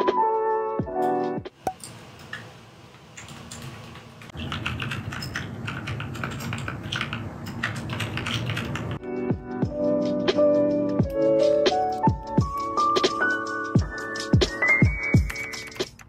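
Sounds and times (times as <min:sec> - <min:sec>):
mechanical keyboard clacking: 0:03.2 - 0:09.0
piano music: 0:09.0 - 0:15.9.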